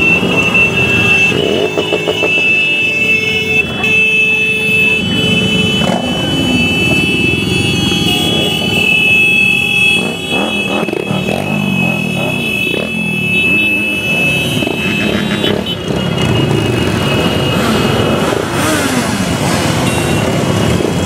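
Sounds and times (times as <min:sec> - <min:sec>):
motorcycles riding past: 0:04.8 - 0:21.0.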